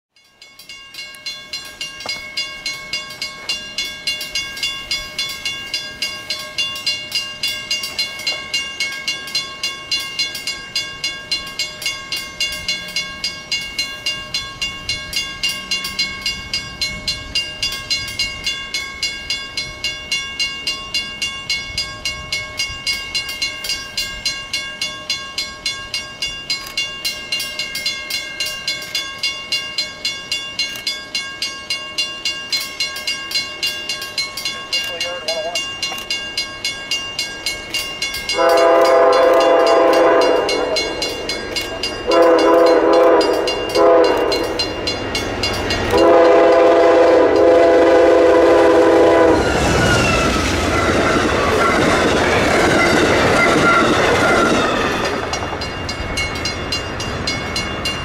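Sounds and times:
railroad crossing bell ringing: 0.1 - 58.0.

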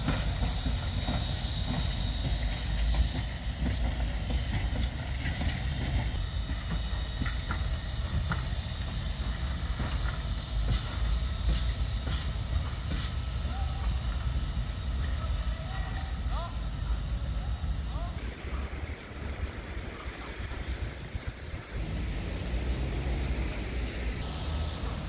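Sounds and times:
wheels clicking: 0.0 - 18.2, 21.8 - 25.0
steam locomotive hissing: 0.0 - 18.8, 21.7 - 25.0
wind rumbling on microphone: 17.5 - 25.0.

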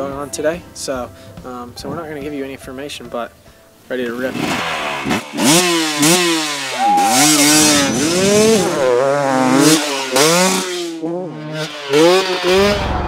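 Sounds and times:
motocross bike engine revving: 4.1 - 13.0.

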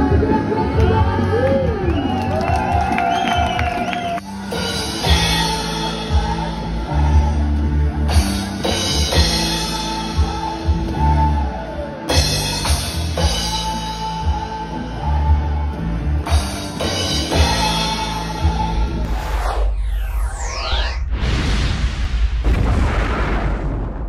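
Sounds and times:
bass line: 0.0 - 24.0
drum kit beat: 2.7 - 14.7, 16.2 - 19.0.

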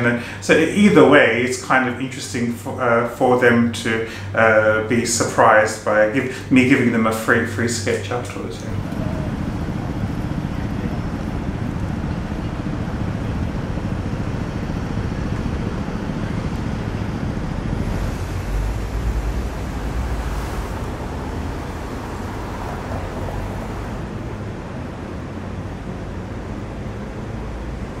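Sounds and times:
steady traffic noise: 0.0 - 28.0
low rumble: 8.5 - 26.7.

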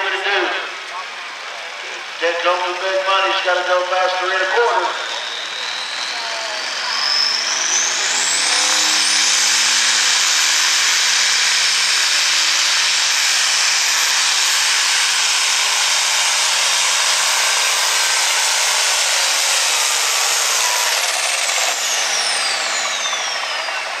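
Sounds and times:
diesel engine under load: 0.0 - 24.0
turbo whistle: 4.7 - 10.8, 19.8 - 24.0.

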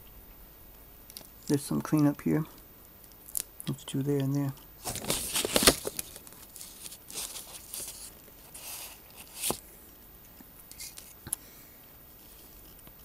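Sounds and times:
plastic parts rustling and knocking: 4.8 - 9.6.

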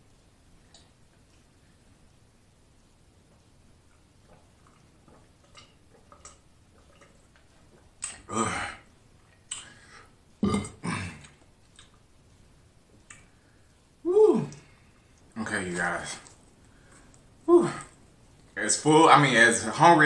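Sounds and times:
man burping: 8.0 - 8.9, 10.4 - 11.4.

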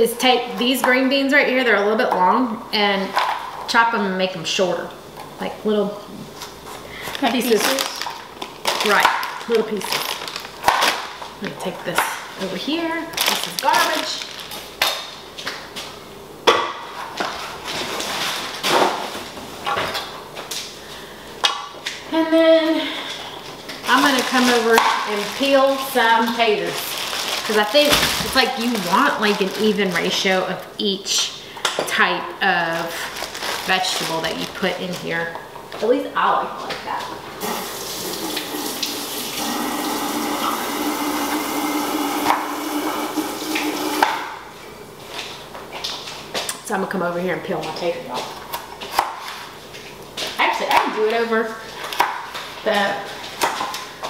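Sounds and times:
faucet running into sink: 37.4 - 44.0.

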